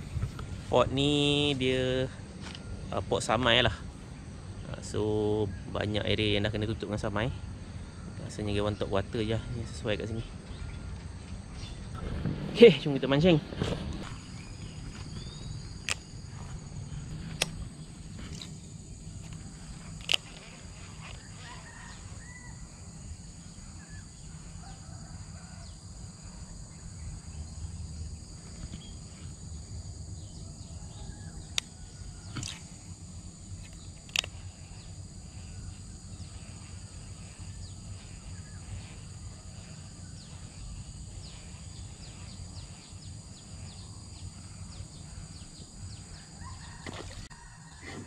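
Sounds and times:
fishing reel clicks: 33.7 - 34.6.

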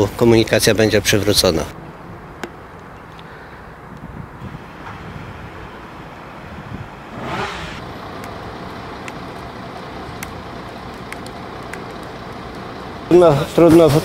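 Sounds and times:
road traffic rumble: 0.0 - 14.0
brief swish: 7.2 - 7.8
faint clicks: 10.2 - 12.7.

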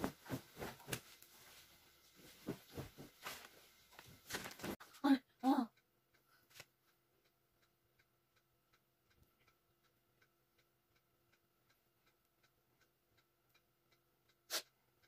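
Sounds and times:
wall clock ticking: 4.8 - 15.0.

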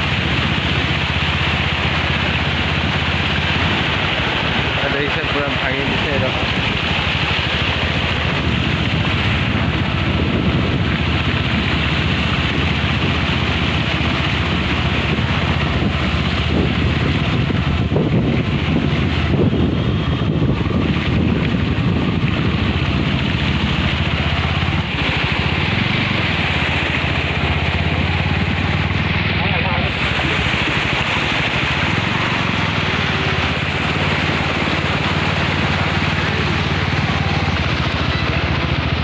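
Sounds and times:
motorbike engine running: 0.0 - 39.0
wind on microphone: 5.8 - 39.0.

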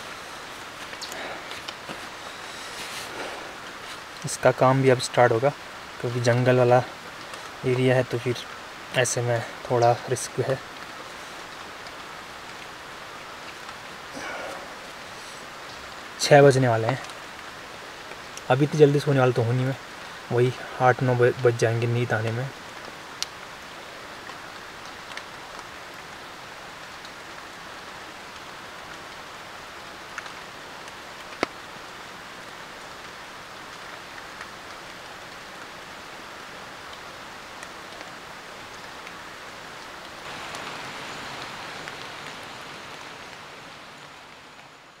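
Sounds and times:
water dripping: 0.0 - 18.6
rain on a tarp: 0.0 - 45.0.

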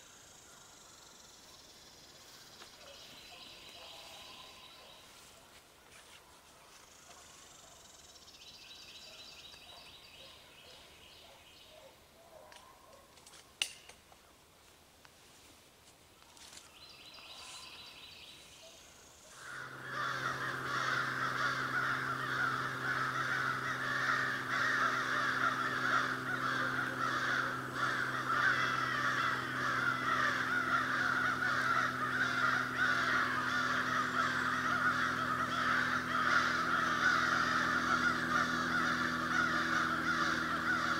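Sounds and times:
sharp click: 13.2 - 14.0
crows cawing: 19.3 - 40.9.

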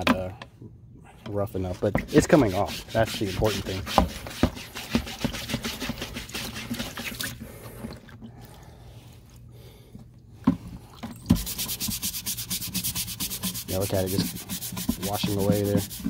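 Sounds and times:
scrubbing pad scouring metal: 1.7 - 7.0, 11.4 - 16.0
liquid sloshing and dripping: 5.1 - 9.3, 10.6 - 11.5.

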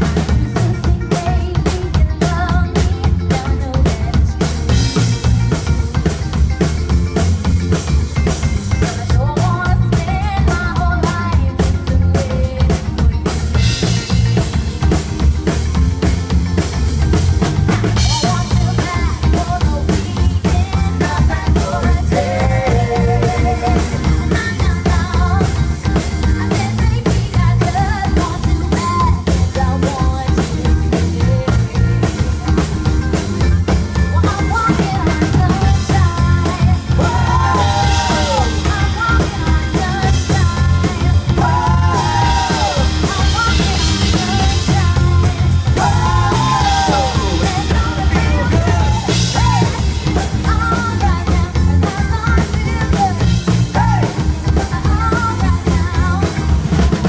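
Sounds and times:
drum kit beat: 0.0 - 57.0
electric guitar: 0.0 - 57.0
heavy bass guitar: 0.0 - 57.0
keyboards: 0.0 - 57.0
people singing into microphones: 18.0 - 25.6, 34.8 - 56.1.

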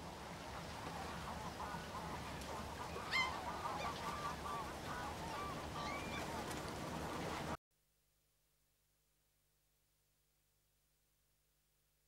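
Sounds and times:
flock of birds calling: 0.6 - 7.2.

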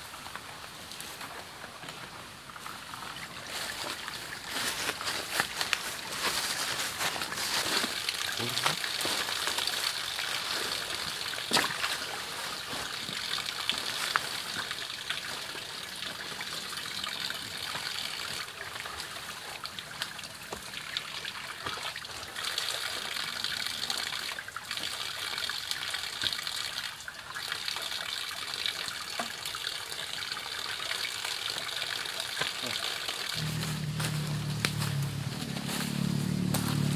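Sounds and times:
undergrowth rustling and snapping: 4.5 - 9.7, 33.4 - 36.9
steady high-pitched hiss: 33.3 - 36.9.

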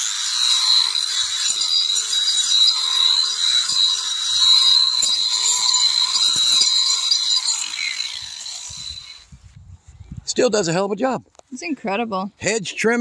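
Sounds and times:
angle grinder whining: 0.0 - 9.4.

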